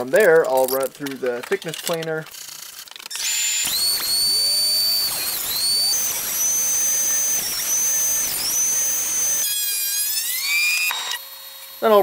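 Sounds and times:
thickness planer motor whine: 0:03.1 - 0:12.0.

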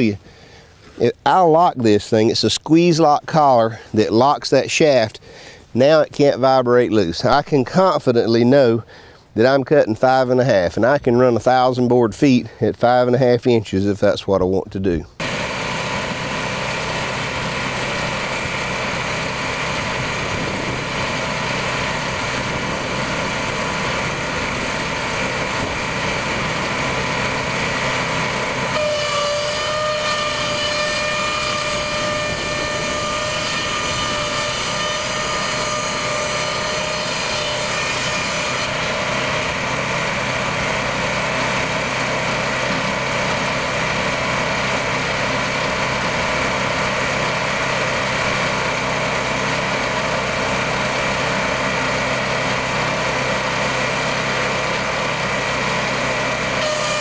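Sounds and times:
board edger running: 0:15.2 - 0:57.0
saw blades whining through wood: 0:15.2 - 0:57.0.

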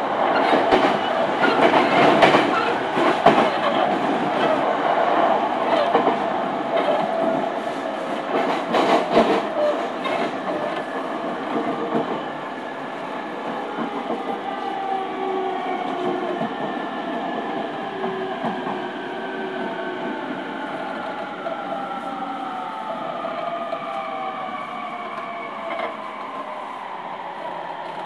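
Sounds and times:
train running noise: 0:00.0 - 0:28.0
wheels clicking over rail joints: 0:00.3 - 0:04.6.

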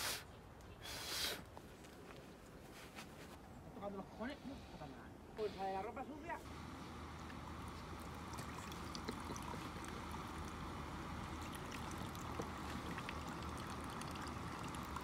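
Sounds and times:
water pouring into plastic cup: 0:07.7 - 0:15.0.

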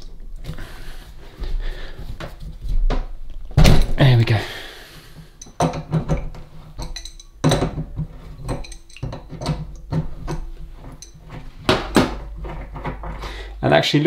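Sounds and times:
metal clicks and clinks: 0:05.4 - 0:07.8, 0:08.4 - 0:11.3.

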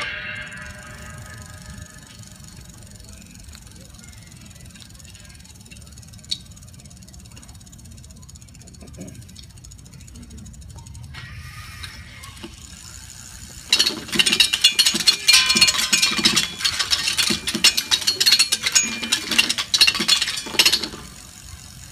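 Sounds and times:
ringing tones: 0:00.0 - 0:03.4, 0:13.7 - 0:21.2
metallic clicking and clattering: 0:13.6 - 0:21.9.

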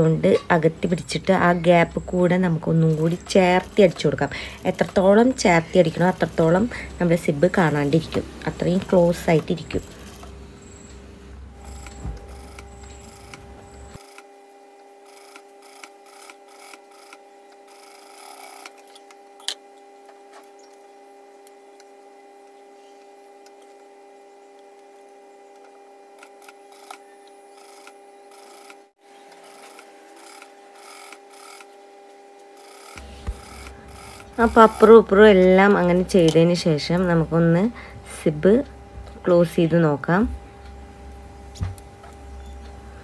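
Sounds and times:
sewing machine stitching: 0:29.4 - 0:31.7, 0:32.6 - 0:35.2.

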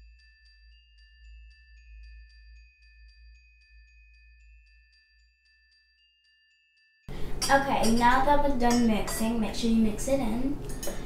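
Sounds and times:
glockenspiel-like tune: 0:00.0 - 0:07.1
ticking beat: 0:07.1 - 0:11.0.

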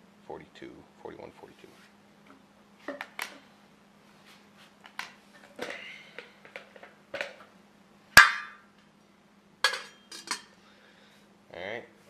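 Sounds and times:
faint steady hum: 0:00.0 - 0:12.0
cookware clicks and taps: 0:09.7 - 0:10.5
metallic clank with ring: 0:09.7 - 0:10.5.

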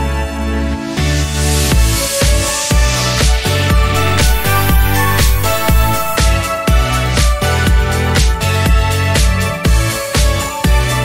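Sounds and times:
upbeat electronic music: 0:03.8 - 0:06.4.

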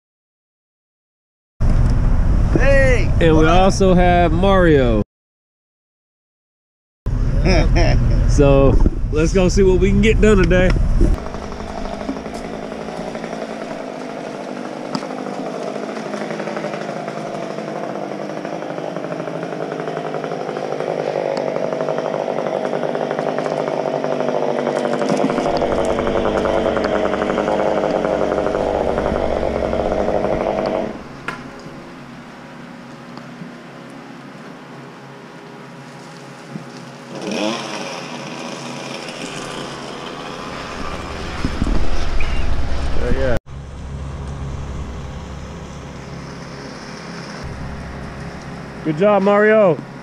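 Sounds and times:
chainsaw engine running: 0:09.8 - 0:32.2, 0:35.9 - 0:41.7, 0:43.5 - 0:50.0.

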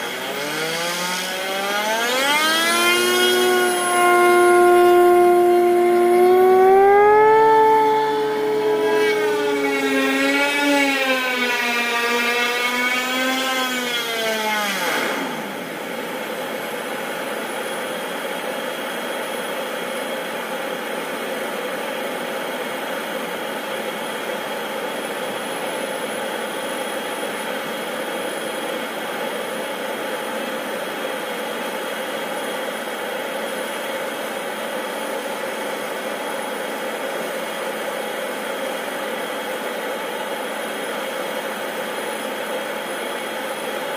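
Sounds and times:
turbine whine: 0:00.0 - 0:43.9
propeller plane taxiing: 0:01.5 - 0:11.2.

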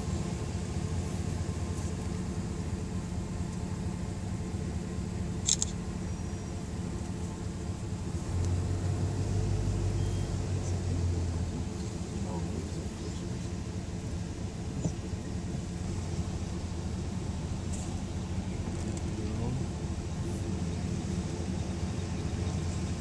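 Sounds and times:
car rumbling slowly: 0:00.0 - 0:23.0
sharp double click: 0:05.4 - 0:05.8.

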